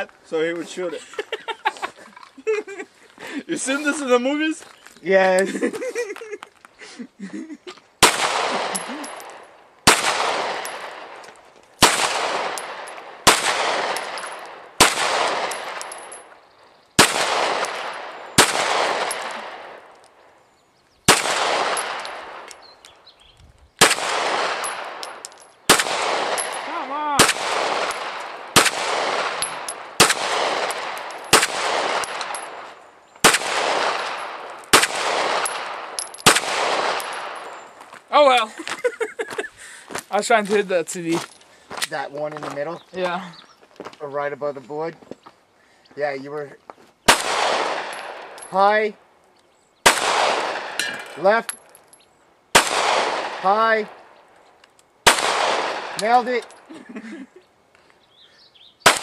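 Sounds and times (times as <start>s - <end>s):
pistol shots with echo: 8.0s - 11.2s, 11.8s - 16.3s, 17.0s - 20.0s, 21.1s - 22.6s, 23.8s - 37.6s, 47.1s - 48.5s, 49.8s - 51.3s, 52.5s - 54.1s, 55.0s - 56.6s.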